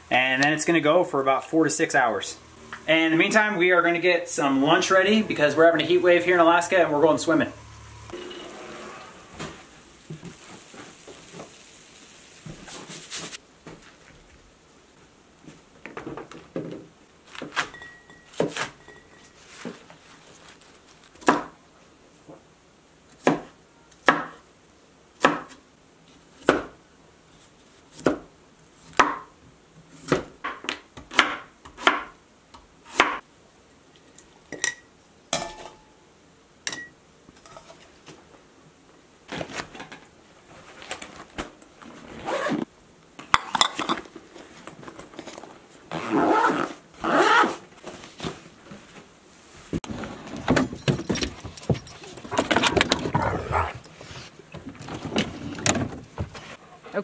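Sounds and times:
rustling: 8.2 - 15.8, 18.6 - 21.2, 39.3 - 42.7
knife chopping on wooden board: 25.2 - 25.6, 30.0 - 32.1.

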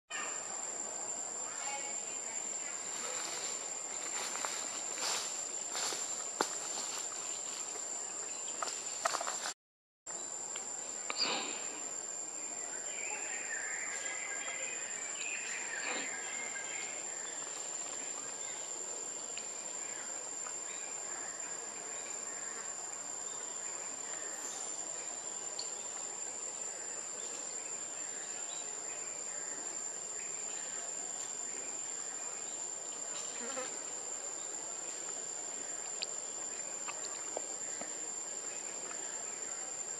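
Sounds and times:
faint chirps and clicks: 16.8 - 19.6, 25.5 - 26.2, 35.8 - 38.0.

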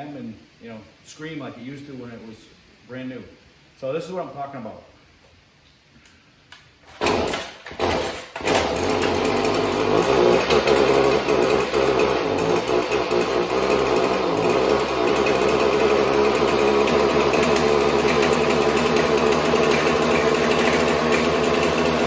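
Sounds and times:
string trimmer engine running: 7.0 - 22.0.

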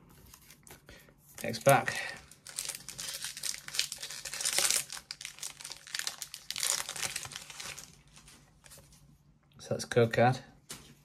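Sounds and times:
foil wrapper crinkling and tearing: 1.4 - 8.3.

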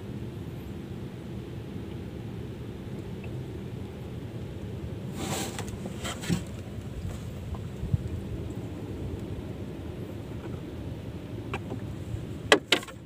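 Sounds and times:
boat engine humming: 0.0 - 13.0
scraping rustles: 5.1 - 7.6.

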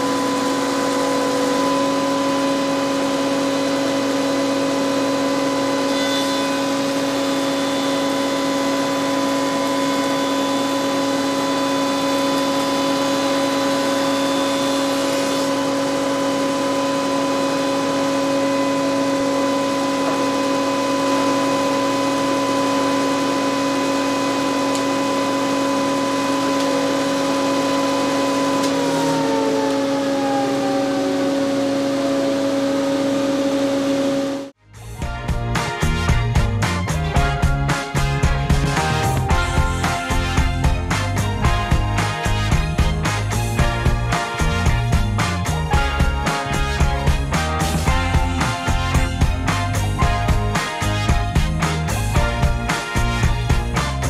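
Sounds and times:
spindle shaper whining hum: 0.0 - 34.6
higher machine whine: 0.0 - 54.0.

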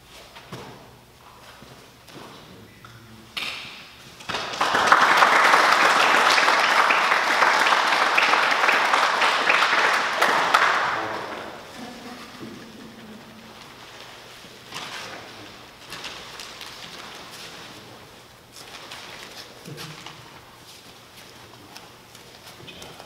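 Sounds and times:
audience clapping: 4.2 - 11.8.

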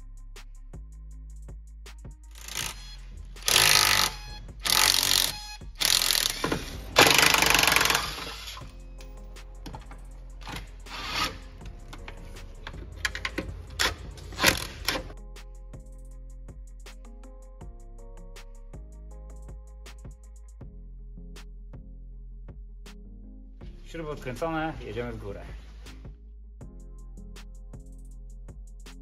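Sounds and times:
impact wrench hammering: 2.4 - 8.7.

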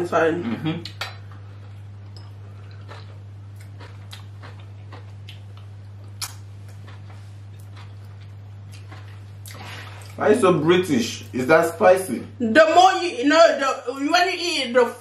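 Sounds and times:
steady low hum: 0.0 - 15.0
people eating and chewing: 0.8 - 10.2.

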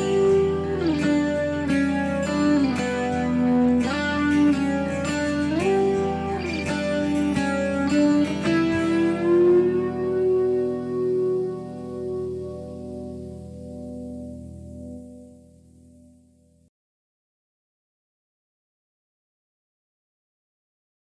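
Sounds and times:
guitar playing plucked notes: 0.0 - 16.6.

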